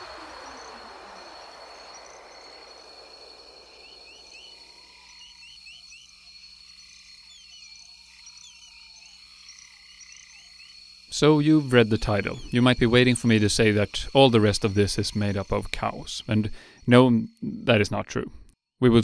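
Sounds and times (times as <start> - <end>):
falling whoosh: 0.0 - 4.8
steady high whine: 0.0 - 6.1
frogs chirping: 0.0 - 18.3.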